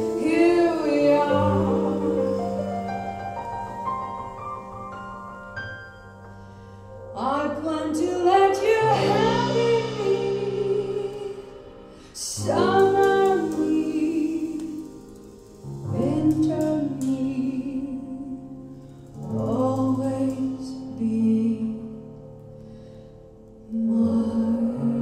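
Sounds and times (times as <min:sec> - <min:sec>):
woman singing: 0:00.0 - 0:02.9, 0:07.2 - 0:15.0, 0:15.9 - 0:18.7, 0:19.3 - 0:22.1, 0:23.7 - 0:25.0
sustained musical accompaniment: 0:00.0 - 0:25.0.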